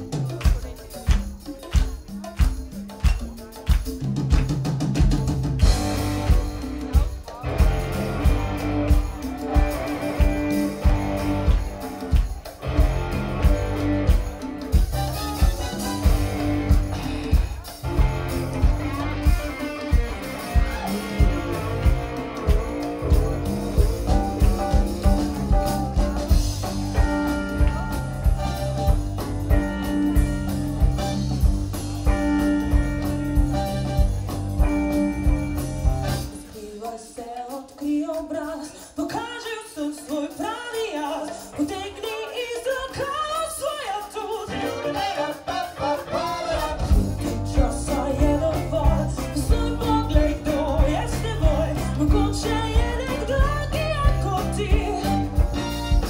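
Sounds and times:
pop-rock band playing: 0.0s - 56.0s
woman singing: 36.3s - 55.6s.

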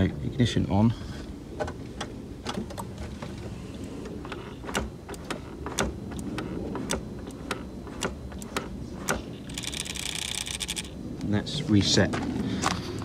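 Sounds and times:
throttle body mechanical clicks: 1.6s - 11.4s.

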